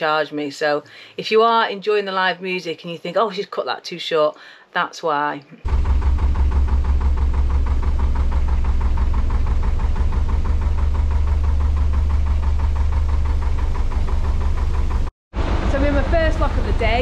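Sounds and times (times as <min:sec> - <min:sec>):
diesel engine throbbing: 0:05.6 - 0:17.0.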